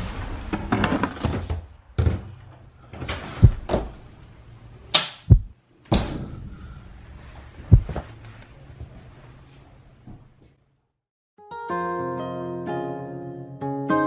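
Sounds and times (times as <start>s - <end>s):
door knocks clicks and thuds: 3.2s - 4.0s, 5.0s - 6.3s, 7.7s - 8.0s.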